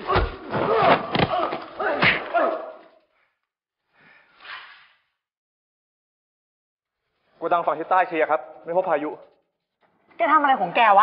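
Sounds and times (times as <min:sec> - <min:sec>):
men grunting and crying out: 0:00.0 - 0:03.0.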